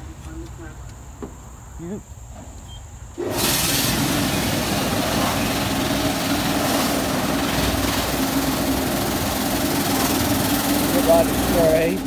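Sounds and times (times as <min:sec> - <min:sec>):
high-pressure water spray: 0:03.2 - 0:12.0.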